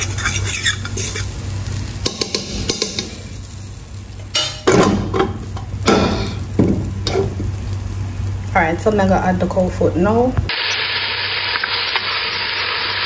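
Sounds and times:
spoon scraping metal pot: 0.0s - 1.3s
pot knocking on stove grate: 4.4s - 7.5s.

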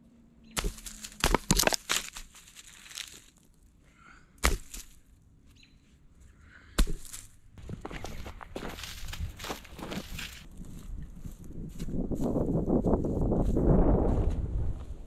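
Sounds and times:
hand tool striking ground: 0.5s - 3.4s, 4.4s - 5.1s, 6.8s - 10.5s.

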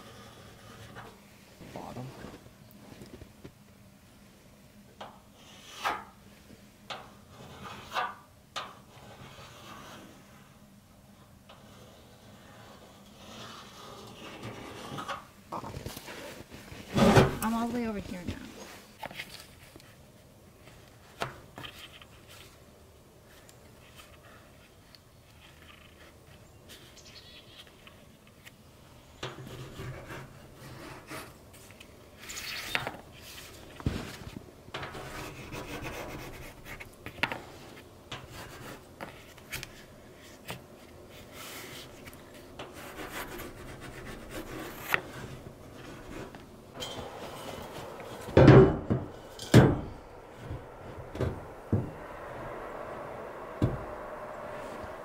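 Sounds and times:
pencil scraping on metal: 7.3s - 8.1s, 11.5s - 15.2s, 34.9s - 36.8s.

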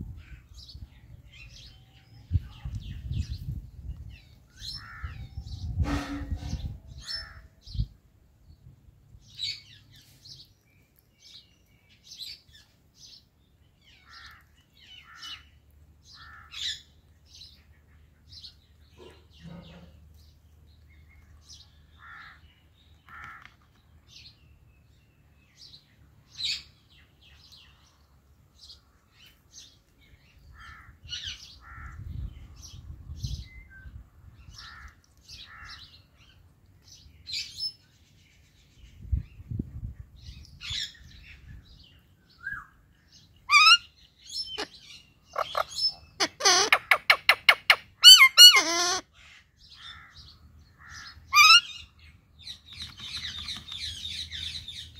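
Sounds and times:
parakeets chirping and squeaking: 43.5s - 49.0s, 51.3s - 51.7s.

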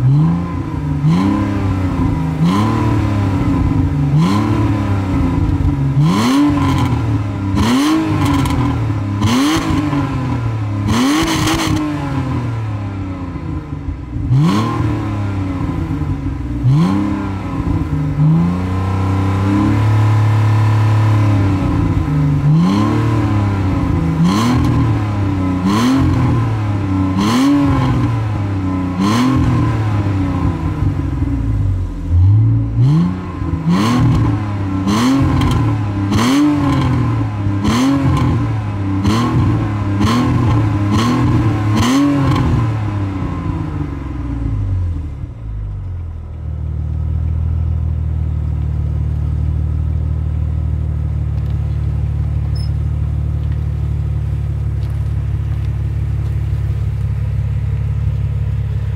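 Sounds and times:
car engine revving: 0.0s - 48.6s
car engine idling: 0.0s - 58.9s
exhaust pops and crackles: 35.2s - 42.7s, 48.4s - 58.9s.

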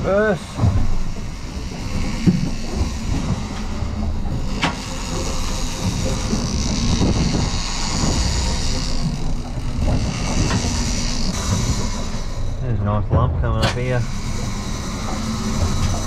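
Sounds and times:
knocks and rattles: 0.0s - 16.0s
boat engine rumble and hiss: 13.7s - 16.0s.

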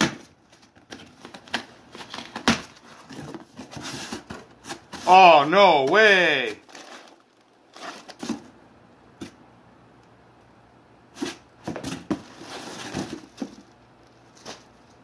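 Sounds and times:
plastic wrapping rustling: 6.5s - 8.5s, 12.1s - 15.0s.

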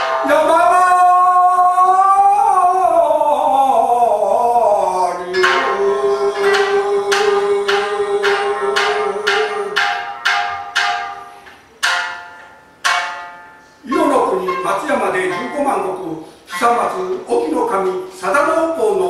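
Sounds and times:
shamisen plucked notes: 0.0s - 1.2s, 5.3s - 18.1s
man singing: 0.2s - 10.1s.

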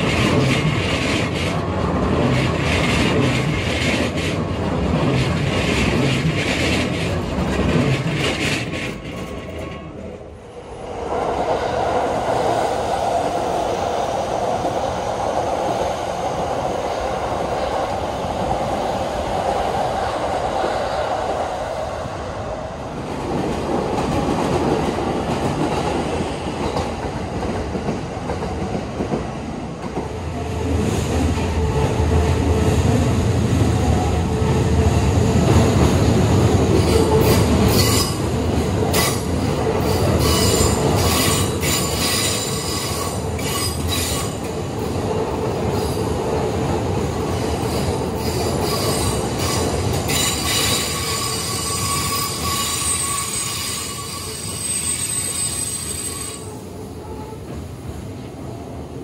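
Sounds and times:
rail-joint clacks: 0.0s - 10.0s
train wheels squealing: 36.8s - 38.2s, 39.8s - 44.4s, 47.4s - 57.4s.

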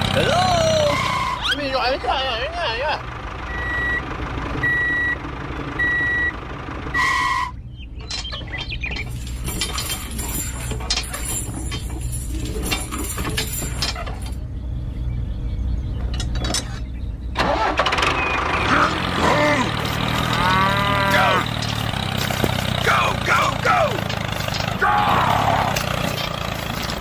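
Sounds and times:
low engine drone: 0.0s - 27.0s
electronic reversing beeps: 3.5s - 4.0s, 4.6s - 5.2s, 5.8s - 6.3s
small chain clinking and rattling: 8.1s - 14.4s.

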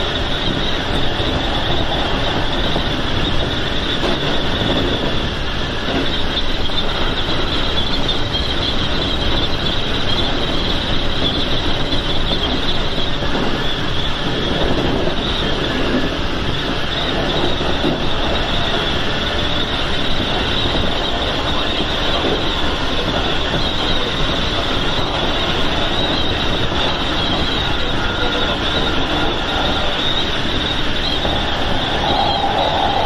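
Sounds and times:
high squeal: 0.0s - 33.0s
train wheels rumbling on rails: 0.0s - 33.0s.

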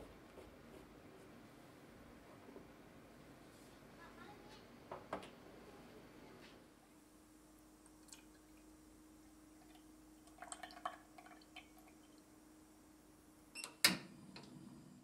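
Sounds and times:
cream trickling into a pan: 9.6s - 12.3s.

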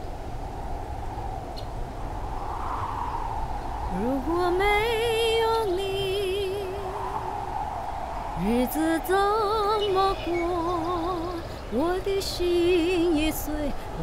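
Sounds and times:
steady background noise: 0.0s - 14.0s
woman singing with vibrato: 3.9s - 7.2s, 8.4s - 14.0s.

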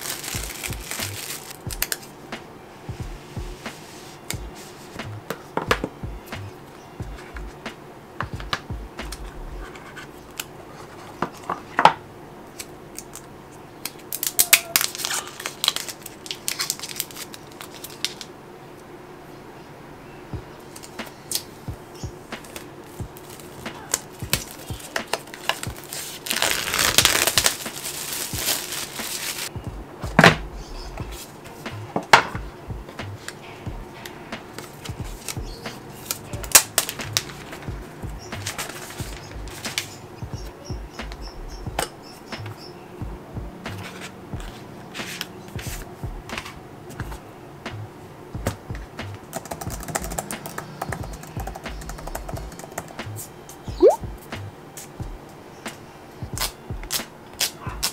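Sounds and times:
paper and plastic rustling: 0.0s - 2.1s, 14.2s - 18.3s, 22.4s - 29.5s, 38.4s - 40.0s.

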